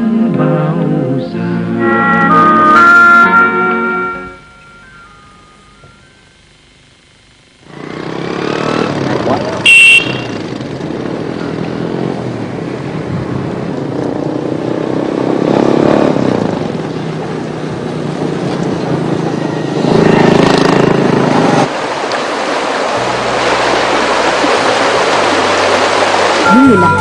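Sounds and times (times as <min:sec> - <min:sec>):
small motorbikes passing: 0:07.6 - 0:21.7.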